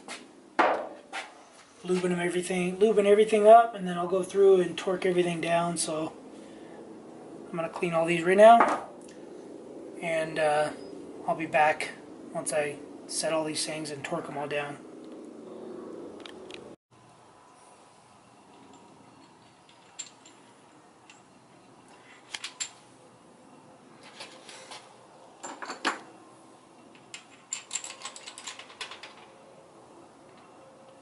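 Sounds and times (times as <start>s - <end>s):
metal engine parts clicking and clinking: 18.5s - 21.4s, 22.1s - 22.9s, 25.4s - 26.1s, 26.8s - 29.4s.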